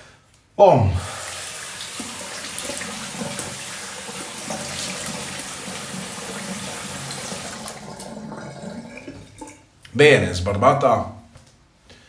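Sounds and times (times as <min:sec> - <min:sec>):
tap water splashing into sink: 0:01.2 - 0:09.6.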